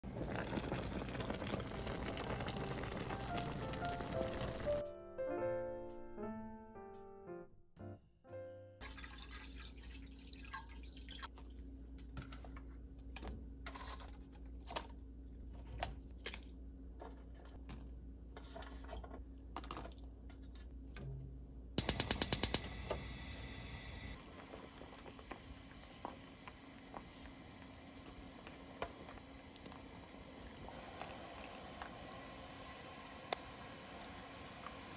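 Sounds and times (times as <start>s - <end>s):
water poured into pan: 0.0s - 4.8s, 8.8s - 11.3s
gas igniter clicking: 21.8s - 23.1s.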